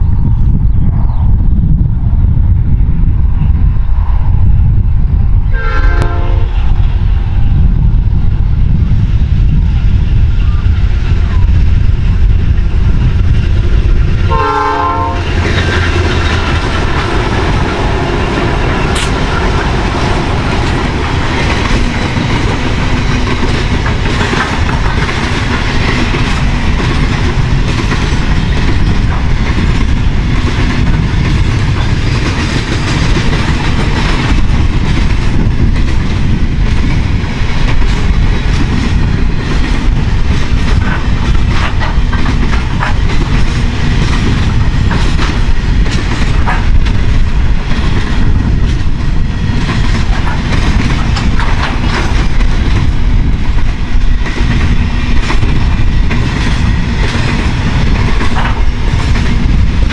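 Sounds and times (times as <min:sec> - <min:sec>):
diesel locomotives rumbling: 0:00.0 - 0:59.9
train horn blast: 0:05.5 - 0:06.7, 0:14.3 - 0:16.1.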